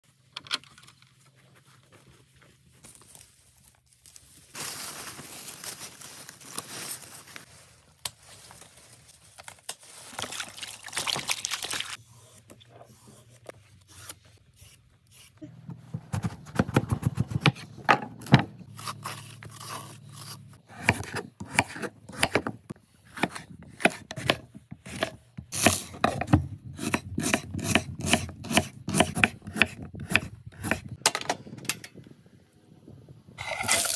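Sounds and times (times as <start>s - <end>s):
rustling and scraping: 0.2s - 10.4s
knife cutting vegetable: 16.1s - 30.9s
vegetable peeler scraping skin: 18.7s - 22.4s.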